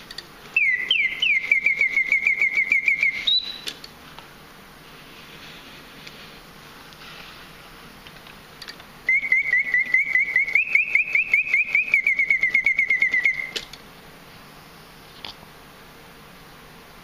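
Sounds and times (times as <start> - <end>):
mechanical bird whistle trilling: 0.6 - 3.7, 9.1 - 13.7.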